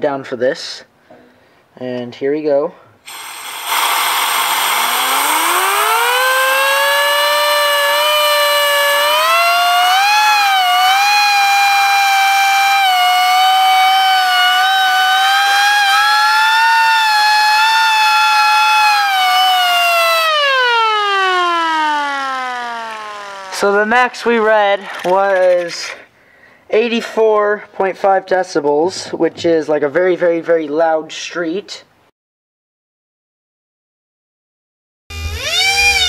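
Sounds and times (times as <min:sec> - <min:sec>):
air raid siren wailing: 0:04.8 - 0:23.8.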